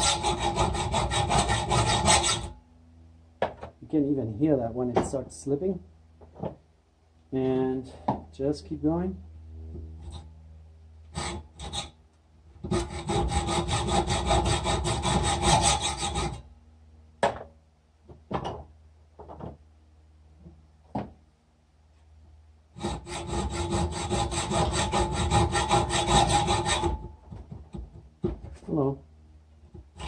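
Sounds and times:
hacksaw cutting metal: 0.0s - 2.5s, 11.1s - 12.0s, 12.6s - 16.4s, 22.8s - 27.1s.

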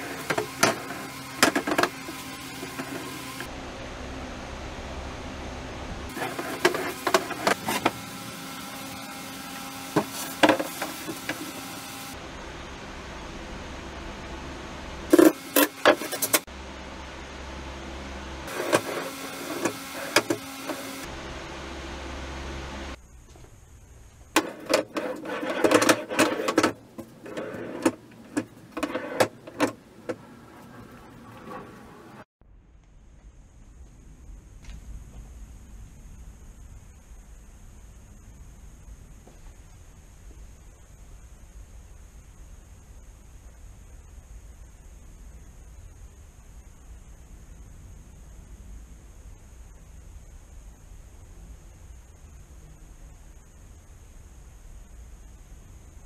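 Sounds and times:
sliding doors rolling on metal track: 24.5s - 32.2s.

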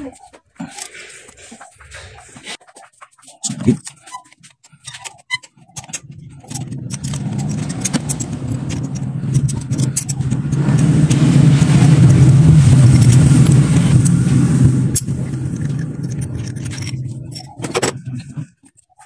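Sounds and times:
metallic clicks and rattles: 2.4s - 11.2s, 15.0s - 19.0s
car engine running: 6.0s - 18.2s.

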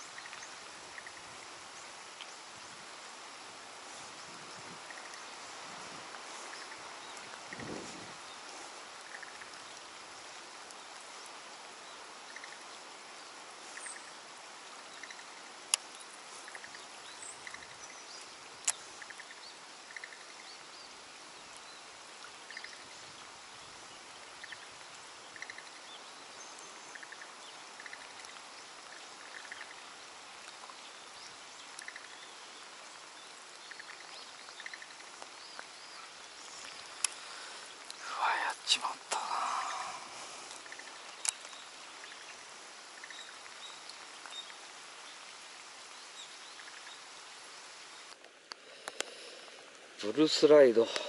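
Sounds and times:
rain and water hiss: 0.0s - 51.0s
sharp clicks: 41.1s - 41.6s.

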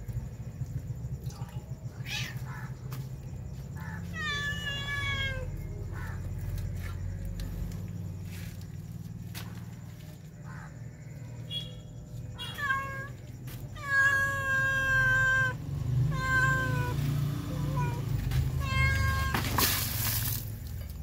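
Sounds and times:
cat meowing: 3.8s - 5.5s, 12.4s - 13.2s, 13.8s - 19.4s.

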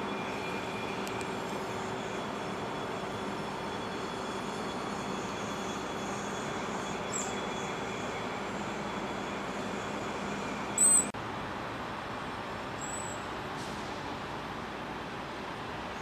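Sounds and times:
city traffic hum: 0.0s - 16.0s
high-pitched chirp: 10.8s - 11.1s.

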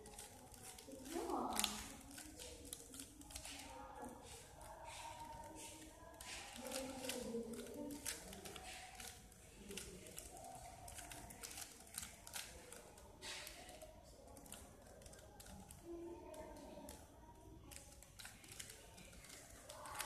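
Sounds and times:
puzzle cube clicking as turned: 6.3s - 17.0s.

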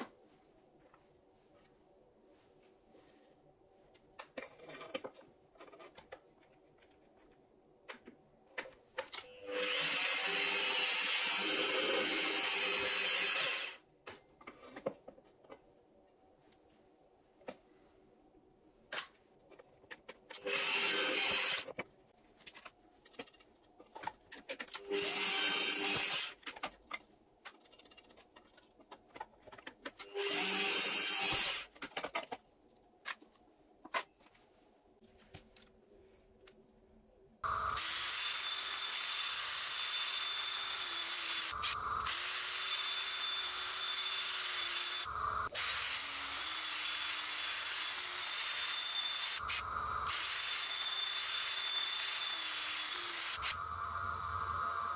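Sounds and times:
power tool high whine: 37.5s - 47.0s, 48.7s - 54.9s.

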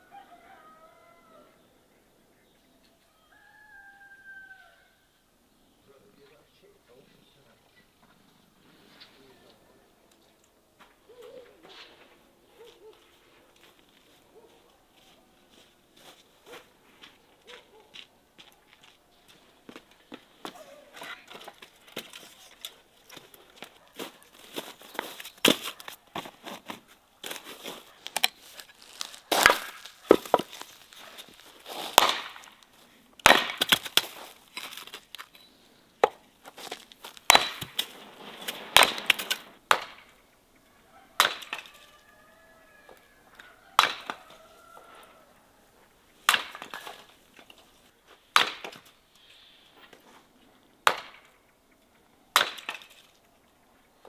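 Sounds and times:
wood pieces knocking: 28.0s - 32.6s, 36.0s - 40.1s
axe striking firewood: 29.3s - 30.7s, 31.3s - 32.6s, 33.2s - 34.9s, 37.2s - 37.9s, 38.8s - 40.1s, 41.2s - 41.7s, 43.8s - 44.2s, 46.3s - 47.1s, 48.3s - 48.9s, 50.8s - 51.3s, 52.4s - 53.0s.

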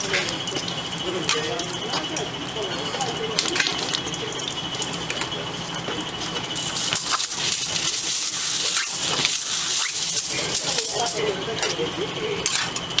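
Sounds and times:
foil crinkling and rustling: 6.6s - 11.2s.

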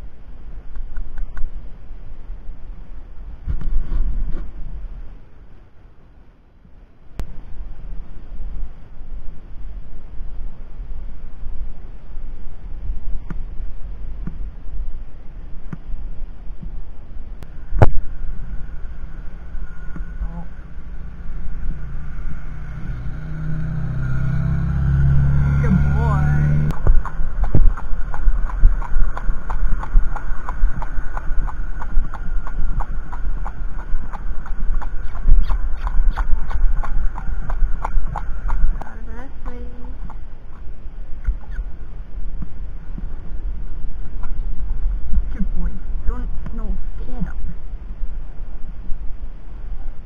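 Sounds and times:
wind buffeting microphone: 10.5s - 50.0s
horse hooves on tarmac: 25.6s - 41.6s.

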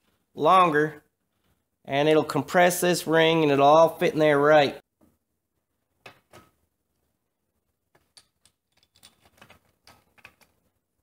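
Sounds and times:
metal parts clicking and tapping: 7.9s - 10.7s.

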